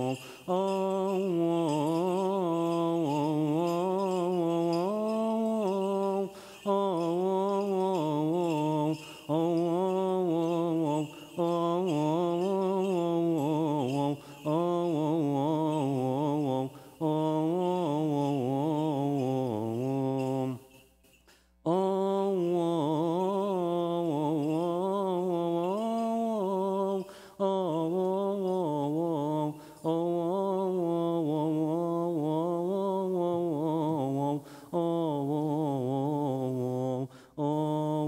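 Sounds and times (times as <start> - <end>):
man chanting a hymn: 0.0 - 20.8, 21.7 - 38.0.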